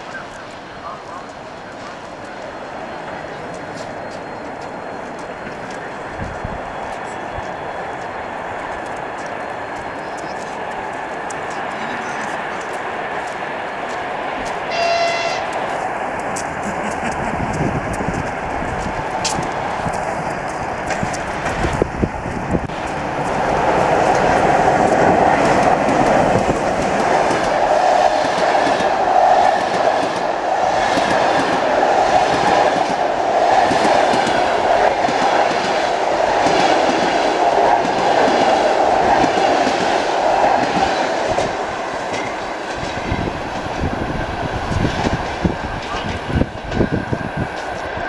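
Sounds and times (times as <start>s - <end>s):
train rushing past: 0.0s - 48.0s.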